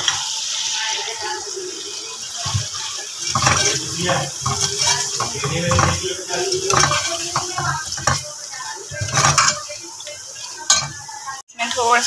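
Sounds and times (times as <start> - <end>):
metal spoon scraping pot: 2.5 - 8.3, 8.9 - 9.8, 10.7 - 11.1.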